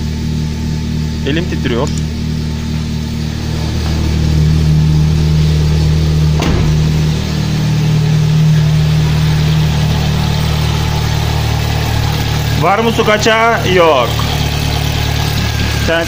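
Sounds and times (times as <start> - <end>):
car engine idling: 0.0 - 16.0
sharp knock: 6.4 - 7.6.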